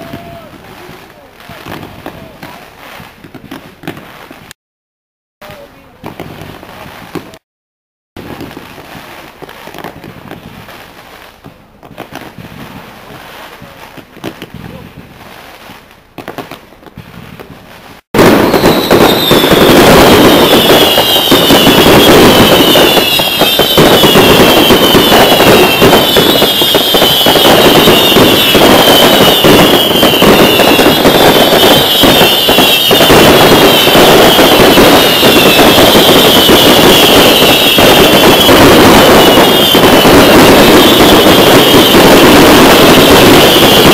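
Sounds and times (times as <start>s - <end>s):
fireworks bursts and crackling: 0.0s - 4.6s, 5.4s - 7.4s, 8.2s - 43.9s
high whistle falling in pitch: 18.2s - 43.9s.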